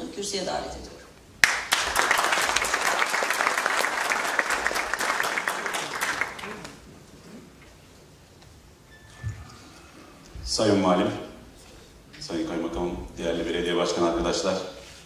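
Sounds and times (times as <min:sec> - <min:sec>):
audience applauding: 0:01.4 - 0:06.9.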